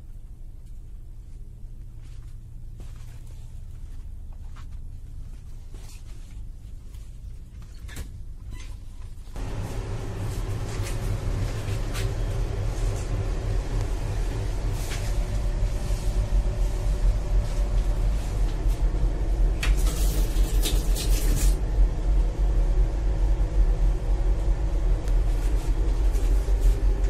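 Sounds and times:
train rumble and rattle: 9.3 - 27.0.

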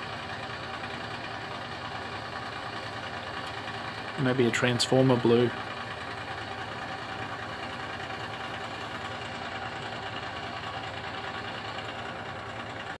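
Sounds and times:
fire engine idling: 0.0 - 13.0.

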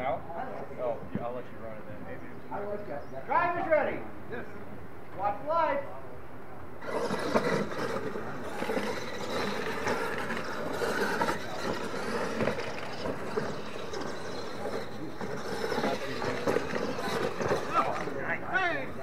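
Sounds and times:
toy truck motors running: 6.8 - 19.0.

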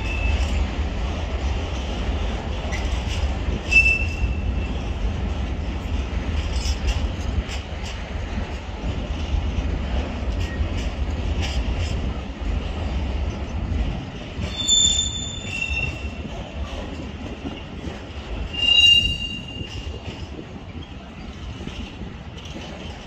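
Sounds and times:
train wheels squealing: 0.0 - 0.6, 2.7 - 4.9, 14.4 - 16.8, 18.4 - 21.3
train rumbling past: 0.0 - 23.0
train wheels clicking: 0.0 - 23.0.

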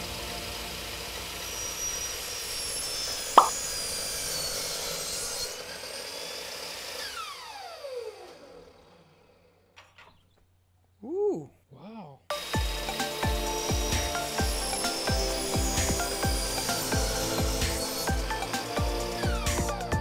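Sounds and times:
miter saw blade whining: 0.0 - 9.7, 12.3 - 20.0
motor spinning down: 5.6 - 9.4, 12.3 - 20.0.

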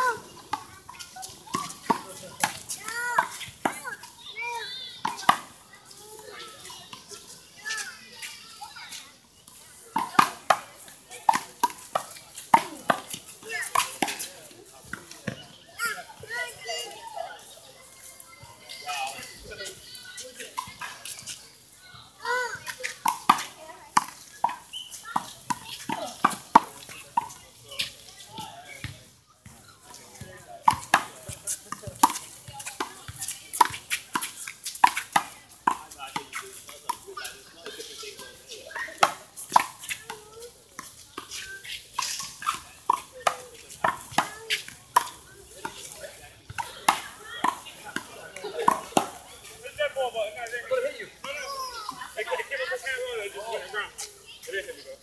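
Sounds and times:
ball bouncing on court: 14.8 - 15.5, 30.3 - 36.3, 46.5 - 49.2.

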